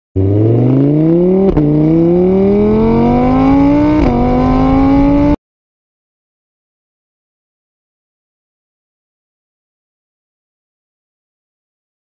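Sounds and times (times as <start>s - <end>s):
car engine accelerating: 0.2s - 5.4s.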